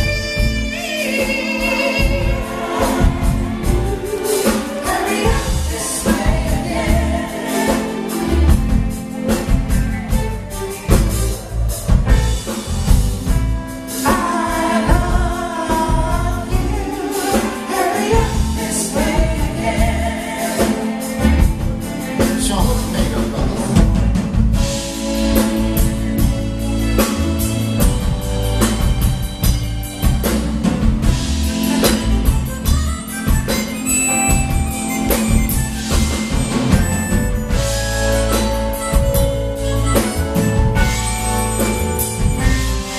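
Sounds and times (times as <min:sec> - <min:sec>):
person singing: 0:00.0 - 0:09.5, 0:14.0 - 0:24.0
electric bass: 0:00.0 - 0:17.0, 0:18.1 - 0:42.9
drum kit: 0:00.0 - 0:42.9
live band playing: 0:00.0 - 0:42.9.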